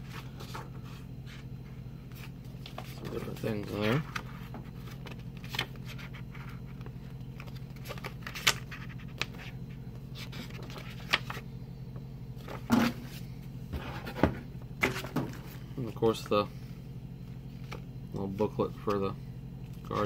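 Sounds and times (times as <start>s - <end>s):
low steady hum: 0.0s - 20.0s
paper pages rustling: 2.1s - 11.4s.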